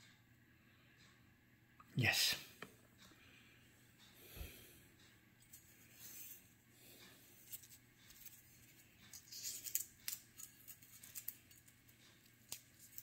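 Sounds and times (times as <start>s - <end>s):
soft handling rustles: 5.4s - 13.0s.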